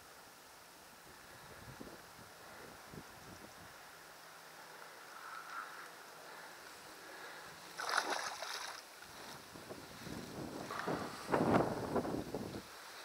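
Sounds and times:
fish splashing at water surface: 7.8 - 8.8.

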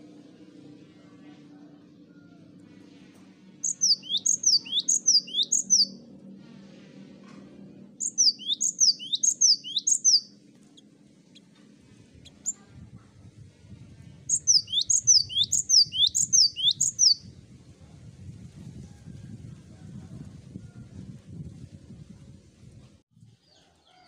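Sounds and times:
bird singing whistled phrase: 3.6 - 6.0, 8.0 - 10.3, 14.3 - 17.2.

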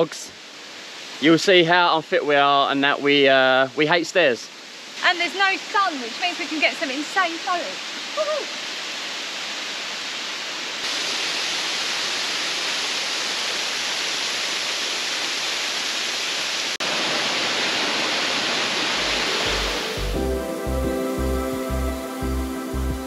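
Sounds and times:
waterfall roaring: 4.8 - 23.0
music with a low beat: 19.5 - 23.0.

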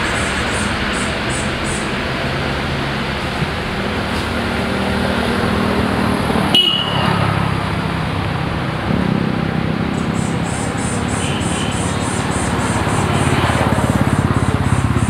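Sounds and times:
road traffic noise: 0.0 - 15.0
fast high ticking: 9.9 - 15.0.

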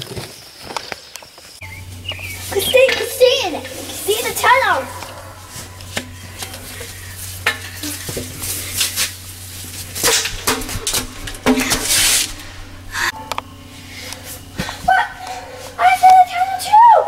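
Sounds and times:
scrapes of crawling in a pipe: 5.1 - 13.1
knocks inside a pipe: 10.0 - 12.4.

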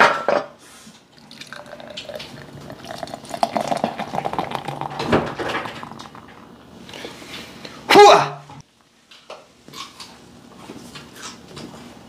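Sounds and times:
beer pouring into a glass: 1.1 - 6.6.

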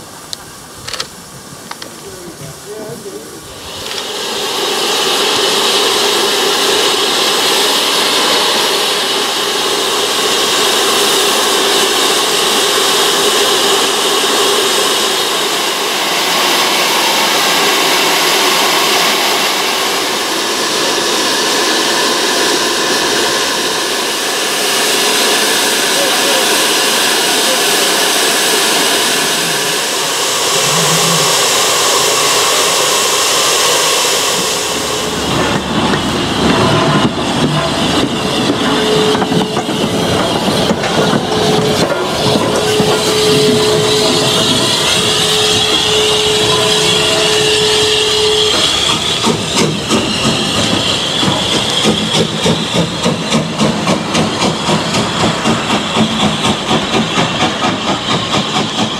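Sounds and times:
steam locomotive venting steam: 0.0 - 58.9.

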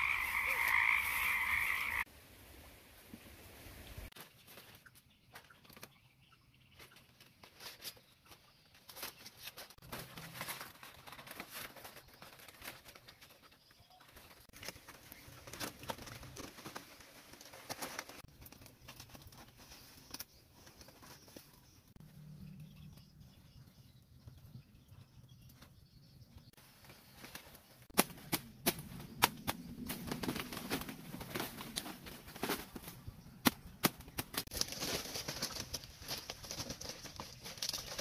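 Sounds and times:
palm-leaf strips rustling: 26.7 - 38.0.

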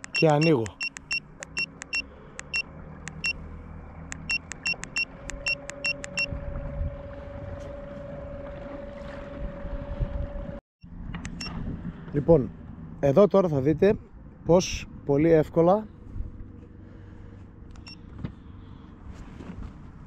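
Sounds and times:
trolling motor whining: 1.1 - 12.2
short high electronic beeps: 4.2 - 6.3
low rumble of water: 6.2 - 13.0.

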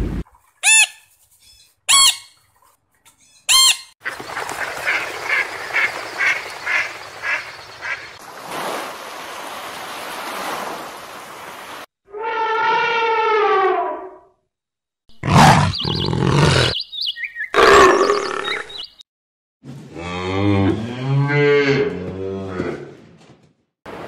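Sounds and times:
elephant trumpeting: 15.2 - 16.7
leopard rasping calls: 15.2 - 16.8.

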